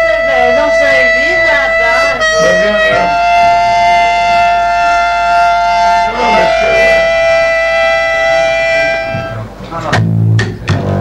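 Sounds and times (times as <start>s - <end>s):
instrument drone chord: 0.0s - 11.0s.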